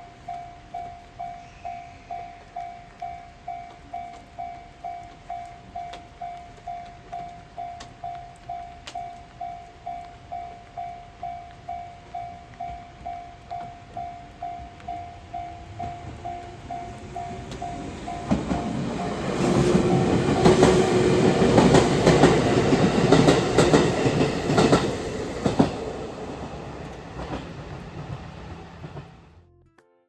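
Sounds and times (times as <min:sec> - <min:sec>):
level-crossing bell ringing: 0:00.0 - 0:19.4
train wheels clattering on rails: 0:14.8 - 0:29.4.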